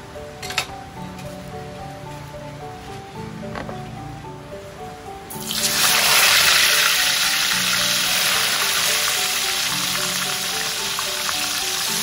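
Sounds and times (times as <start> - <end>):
background music: 0.0 - 12.0
oil sizzling in a wok: 5.3 - 12.0.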